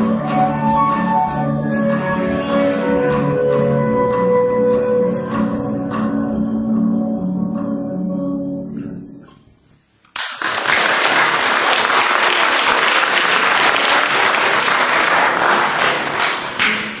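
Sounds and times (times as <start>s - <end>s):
band playing: 0.0s - 8.8s
audience applauding: 10.1s - 17.0s.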